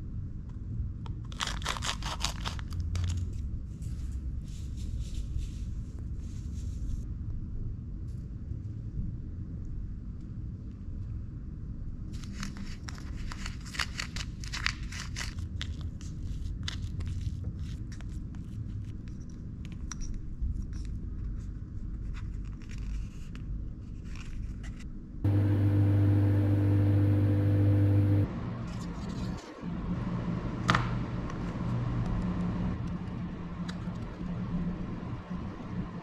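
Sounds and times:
microwave oven humming: 25.2 - 28.6, 29.6 - 33.7.

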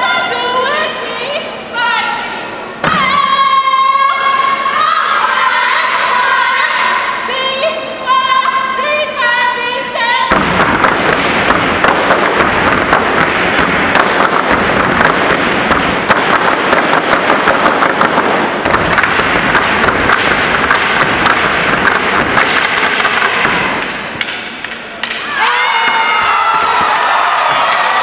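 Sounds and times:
sticks striking floor: 10.3 - 26.0.

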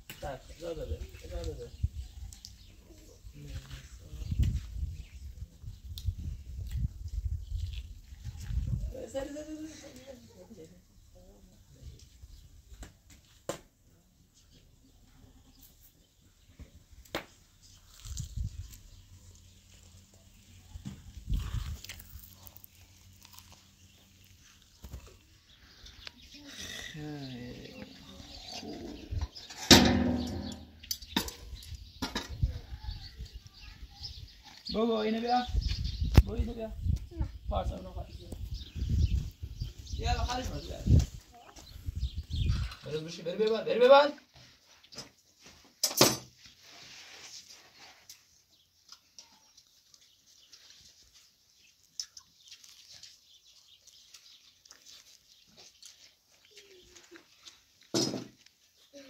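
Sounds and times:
people chewing corn on the cob: 2.1 - 3.9, 5.8 - 8.8, 17.0 - 27.0, 48.0 - 59.0
sharp knock: 29.7 - 30.8.

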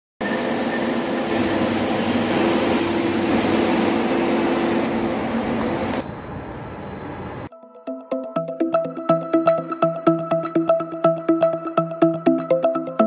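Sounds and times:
metal-cutting machine tools running: 0.2 - 6.0.

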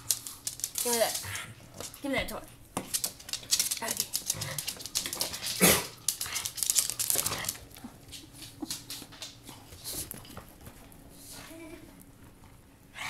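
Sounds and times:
toy clicks and rattles: 0.0 - 1.3, 3.0 - 7.6.

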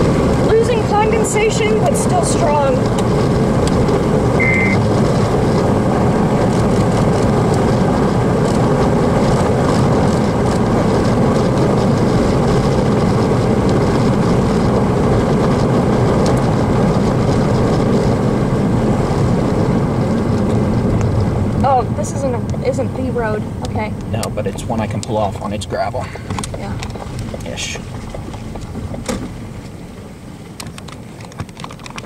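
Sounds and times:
wind and road noise: 0.0 - 32.0
short high beep: 4.4 - 4.8.

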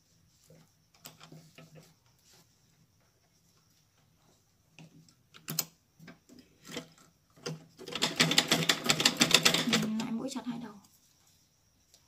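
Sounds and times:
sewing machine stitching rattle: 6.6 - 10.1
sewing machine clicks: 6.7 - 10.0.

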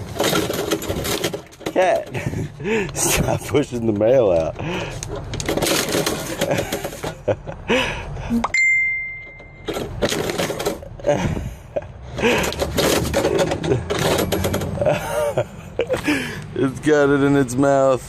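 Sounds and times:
mail slot flap clattering: 5.2 - 7.1, 9.6 - 10.8
clear ringing ding: 8.4 - 9.7.

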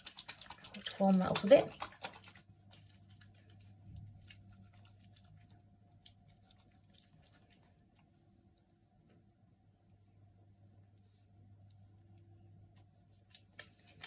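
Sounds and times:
soft wet ticks of cleanser rubbing: 0.0 - 9.1
low steady hum: 0.0 - 14.0.

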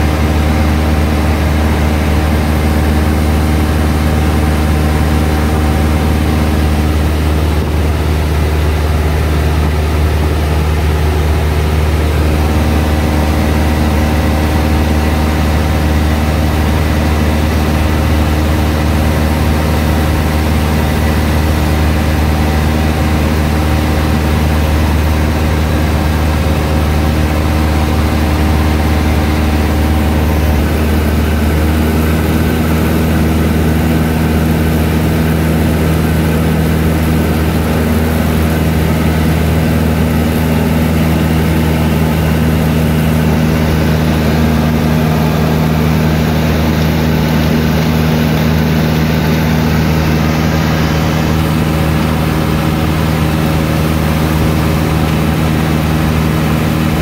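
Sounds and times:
airplane engine and propeller droning: 0.0 - 57.0.

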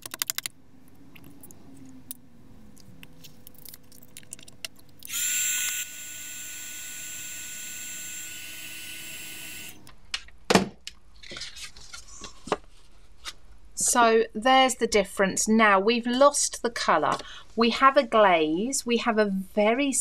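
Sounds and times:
heat gun fan hissing and whining: 5.1 - 9.9.

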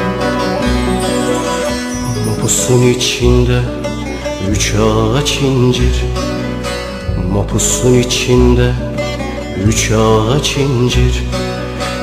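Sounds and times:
steady bass: 0.0 - 6.3
plucked string melody: 0.0 - 12.0.

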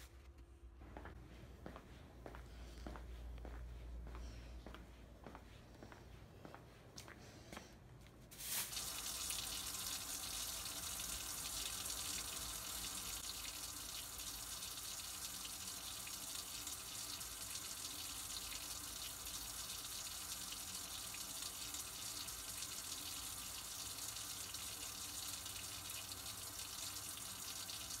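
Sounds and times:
faucet running into sink: 8.6 - 28.0.

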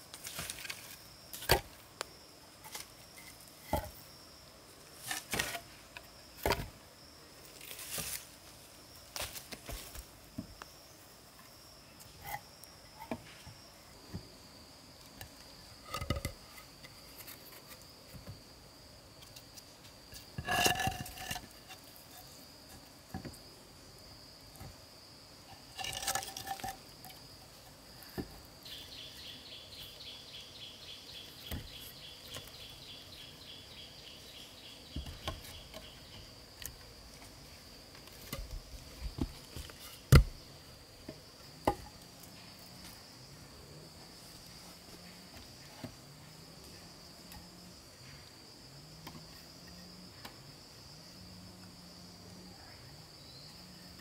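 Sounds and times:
high insect drone: 0.0 - 54.0
wooden logs knocking together: 6.4 - 6.7, 15.9 - 18.4, 38.0 - 40.4
insect chirping rapidly: 10.0 - 45.7.

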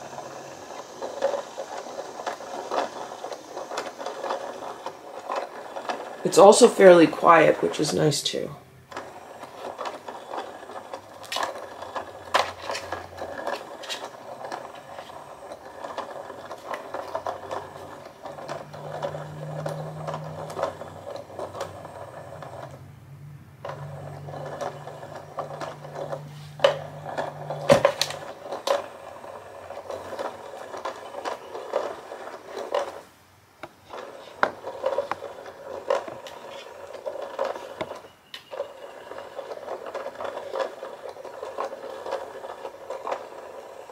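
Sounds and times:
small motor whirring: 0.0 - 43.9.

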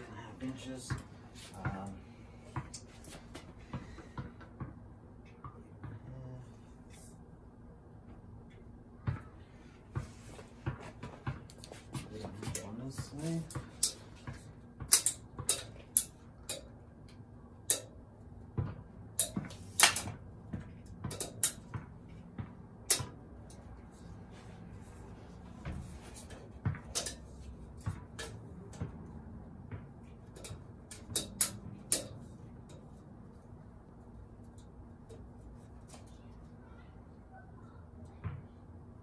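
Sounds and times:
tape measure clicks and metal taps: 13.8 - 14.0, 14.9 - 17.9, 19.2 - 20.1, 21.1 - 21.6, 26.3 - 27.3, 30.3 - 32.8.

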